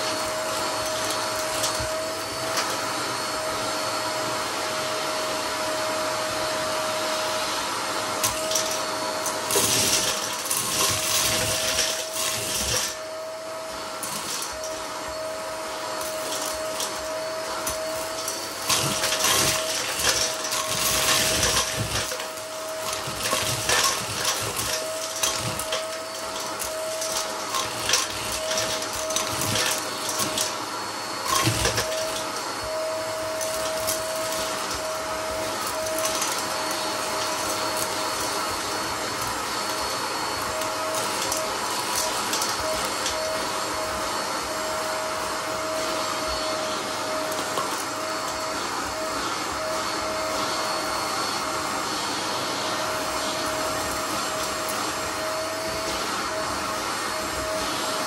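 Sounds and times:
vacuum cleaner whine: 0:00.0 - 0:58.0.

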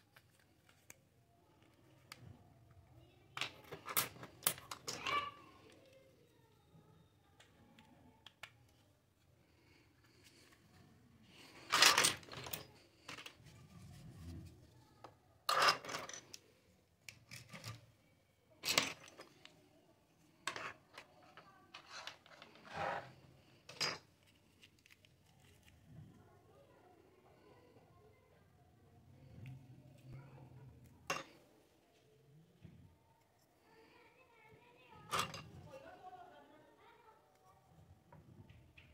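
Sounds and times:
plastic toy pieces clacking: 0:03.3 - 0:05.8, 0:11.4 - 0:13.4, 0:18.6 - 0:19.5, 0:20.4 - 0:25.2.

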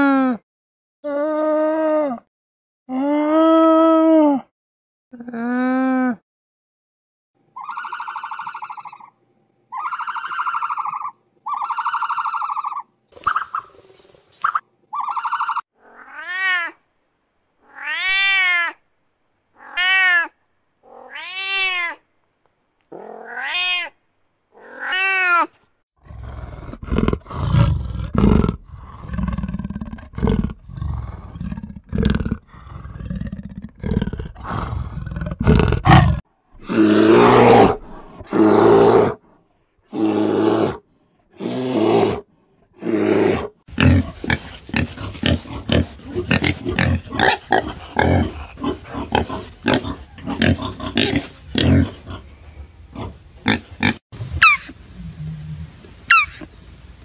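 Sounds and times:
cat meowing: 0:15.8 - 0:16.8, 0:17.6 - 0:18.8, 0:19.6 - 0:22.0, 0:22.9 - 0:24.0
panther growling and snarling: 0:26.0 - 0:39.2, 0:39.9 - 0:54.0
peccary grunting: 0:26.0 - 0:39.2, 0:42.8 - 0:52.3
loud rasping calls: 0:56.1 - 0:56.4.

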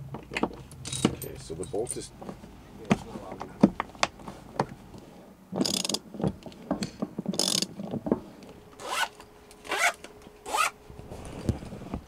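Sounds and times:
socket ratchet clicking: 0:05.6 - 0:06.0, 0:07.4 - 0:07.7
zipper pulled: 0:08.8 - 0:10.8.

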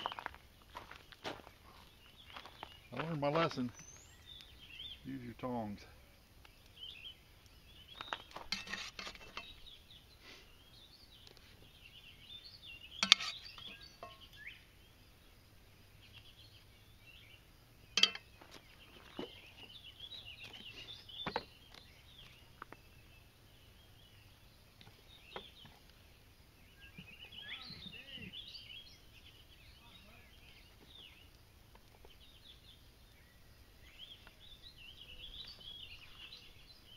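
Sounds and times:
birds chirping: 0:00.0 - 0:36.9
metal utensils clinking on skillet: 0:08.4 - 0:09.6, 0:13.0 - 0:14.3, 0:18.0 - 0:18.3.

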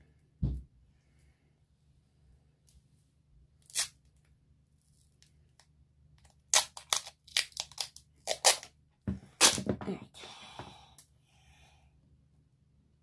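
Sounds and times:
duct tape ripping off roll: 0:03.6 - 0:04.1, 0:06.2 - 0:08.8, 0:09.4 - 0:09.7.

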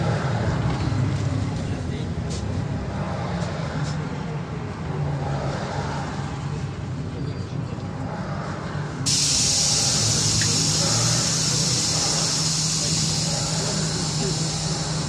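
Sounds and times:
bus engine drone: 0:00.0 - 0:15.0
road noise: 0:00.0 - 0:15.0
loud even hiss: 0:09.1 - 0:15.0.

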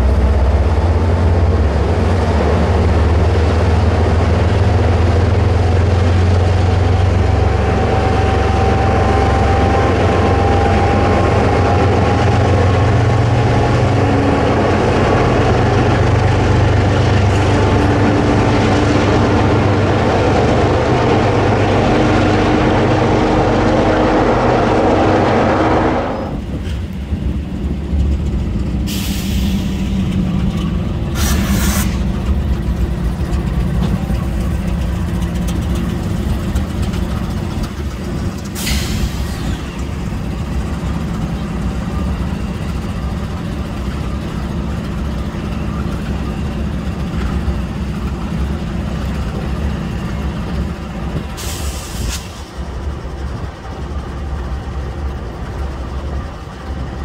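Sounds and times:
diesel locomotive engine running: 0:00.0 - 0:57.0
air brake hisses: 0:28.9 - 0:30.0, 0:31.2 - 0:32.1, 0:38.6 - 0:39.9, 0:51.4 - 0:52.6.

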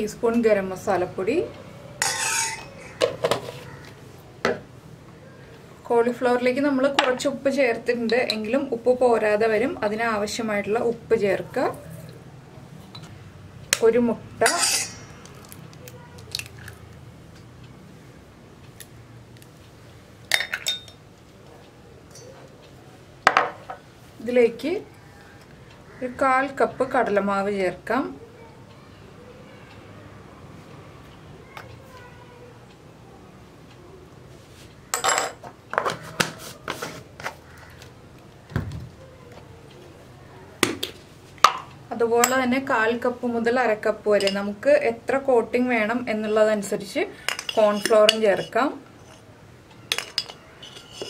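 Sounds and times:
ceramic dish clinking: 0:02.0 - 0:03.2, 0:14.4 - 0:15.2, 0:35.0 - 0:35.4, 0:47.3 - 0:48.6, 0:49.9 - 0:51.0.

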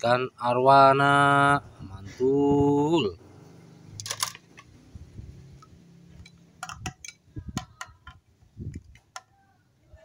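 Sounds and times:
plastic toy clicks and knocks: 0:04.0 - 0:04.7, 0:06.6 - 0:09.3.

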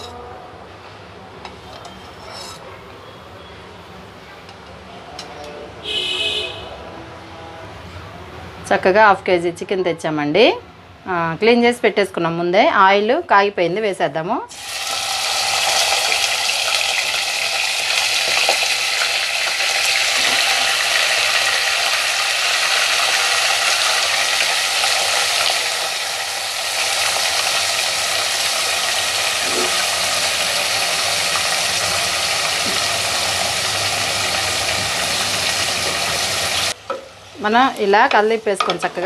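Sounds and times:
chicken sizzling in hot oil: 0:14.5 - 0:37.4.

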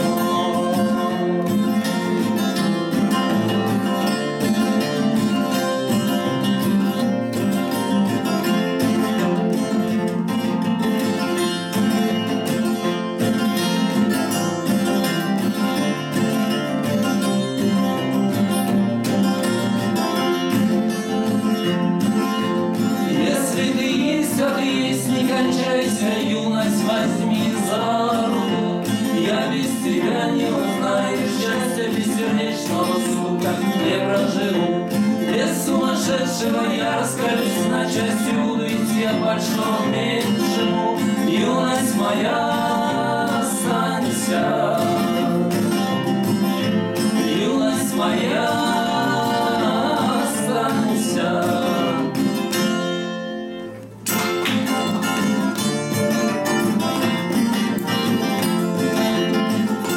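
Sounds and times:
two men singing in harmony: 0:00.0 - 0:04.0, 0:22.9 - 0:52.8
fingerpicked acoustic guitars: 0:00.0 - 0:59.9.

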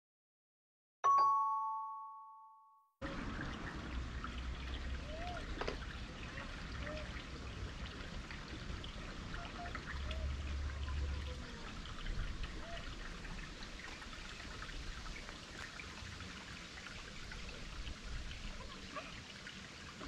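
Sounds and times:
two-tone chime: 0:01.0 - 0:02.9
water trickling in channel: 0:03.0 - 0:20.0.

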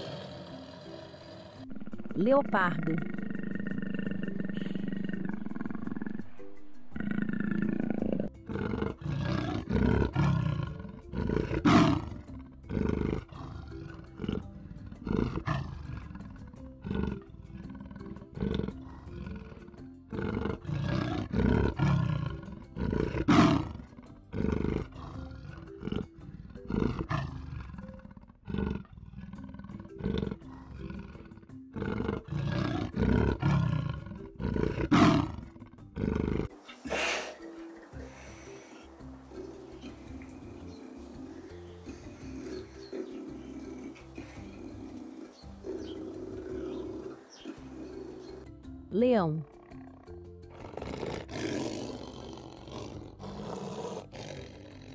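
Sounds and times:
leopard roaring: 0:00.0 - 0:48.5, 0:49.4 - 0:54.9
background music: 0:00.0 - 0:54.9.

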